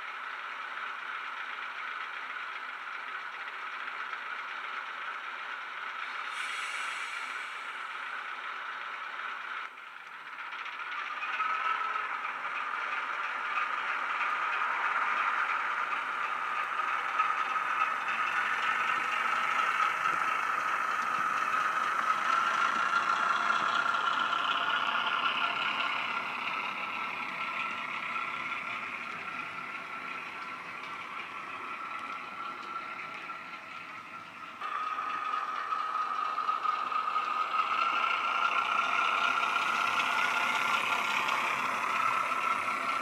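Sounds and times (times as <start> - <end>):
diesel locomotive engine through small speaker: 0.0 - 43.0.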